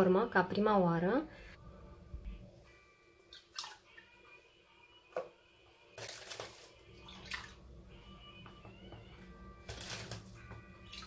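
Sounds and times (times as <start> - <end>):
faint background music: 0.0 - 11.0
liquid splashes and drips: 3.3 - 4.1, 6.0 - 7.6.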